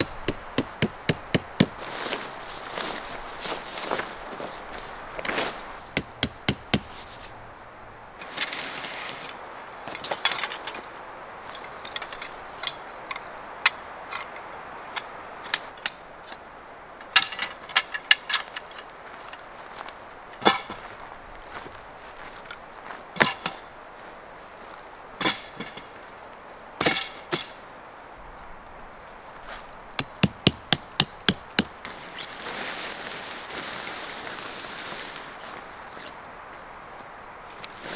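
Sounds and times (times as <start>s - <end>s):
metal tent poles clinking: 0.0s - 2.3s, 5.8s - 7.3s, 29.7s - 32.0s.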